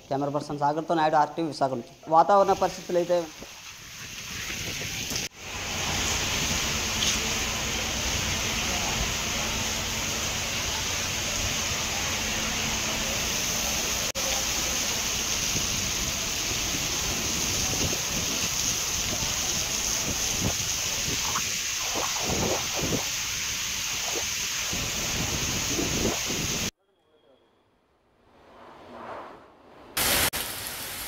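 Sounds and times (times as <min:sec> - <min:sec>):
heavy rain pouring: 0:02.5 - 0:26.7, 0:30.0 - 0:31.0
wind on microphone: 0:04.0 - 0:05.3, 0:17.3 - 0:26.7.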